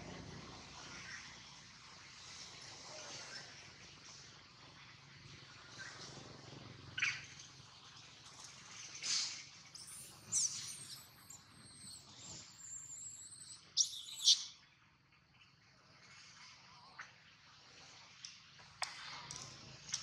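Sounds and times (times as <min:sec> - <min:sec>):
thin high whine: 0:09.8 - 0:14.2
high-pitched chirping calls: 0:09.8 - 0:14.6.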